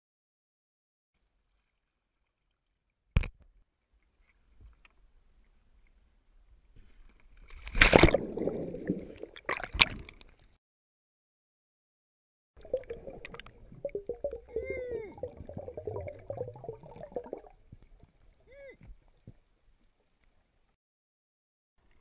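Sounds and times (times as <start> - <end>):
underwater splashing and bubbling: 7.6 - 10.4, 12.6 - 18.5.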